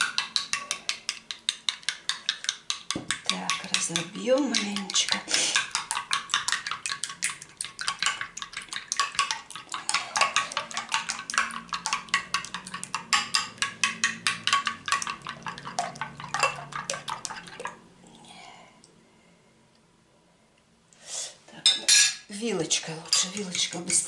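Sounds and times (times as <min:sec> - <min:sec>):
spoon clinking on bowl: 0:09.0 - 0:16.9.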